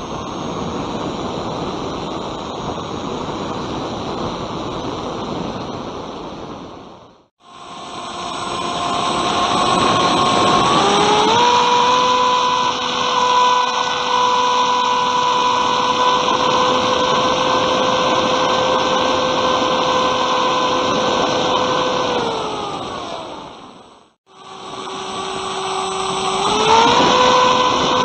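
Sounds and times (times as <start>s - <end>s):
electric motor and propeller whining: 0.0s - 28.0s
rushing airflow: 7.6s - 23.8s.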